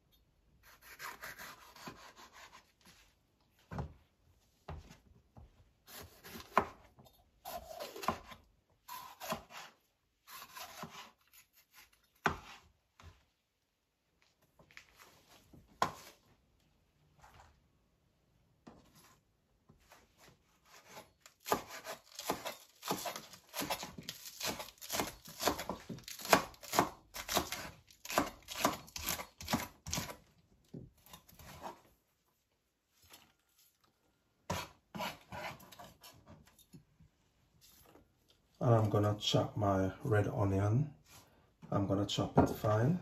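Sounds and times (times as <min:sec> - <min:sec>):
knife slicing peppers on board: 0:00.6 - 0:02.7, 0:05.9 - 0:06.9, 0:07.5 - 0:12.6, 0:19.9 - 0:30.2, 0:34.5 - 0:36.4.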